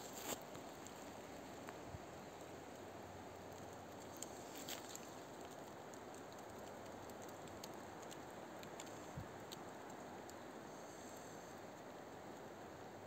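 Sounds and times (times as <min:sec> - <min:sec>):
footsteps on pine needles and twigs: 0:00.0 - 0:00.4
steady low hiss: 0:00.0 - 0:13.0.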